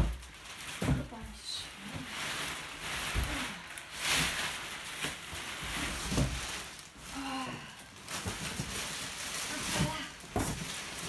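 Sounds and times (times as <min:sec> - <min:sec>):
dog bed rustling: 0:00.0 - 0:07.1.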